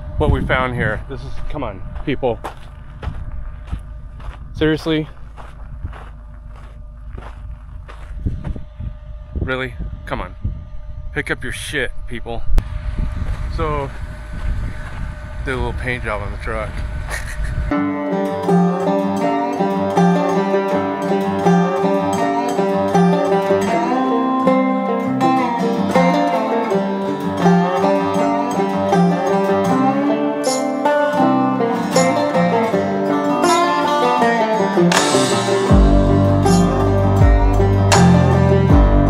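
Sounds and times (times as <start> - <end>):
instrumental background music: 17.7 - 39.0.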